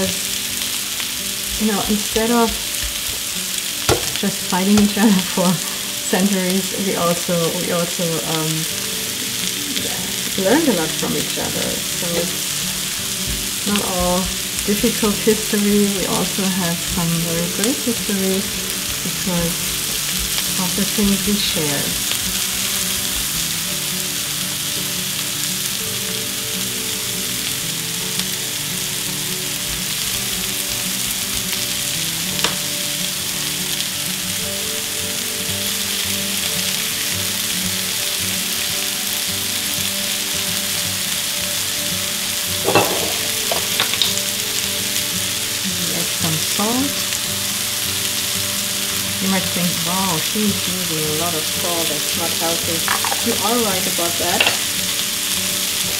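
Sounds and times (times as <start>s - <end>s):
vegetables sizzling in frying pan: 0.0s - 55.9s.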